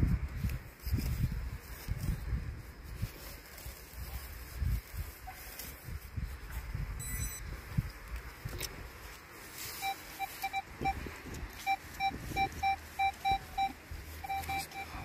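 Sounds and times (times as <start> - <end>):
metal detector beeping: 7.0 - 7.6, 9.7 - 15.0.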